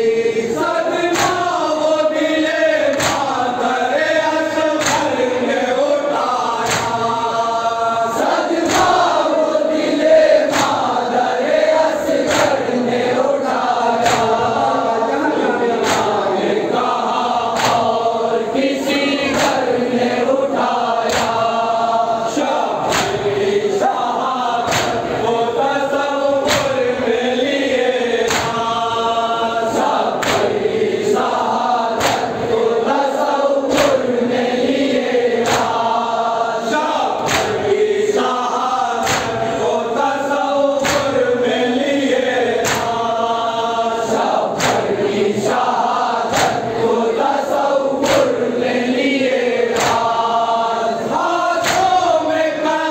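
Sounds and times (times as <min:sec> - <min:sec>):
men chanting in unison: 0:00.0 - 0:52.9
person reciting into a microphone: 0:00.0 - 0:52.9
hands beating on chests: 0:51.6 - 0:52.0.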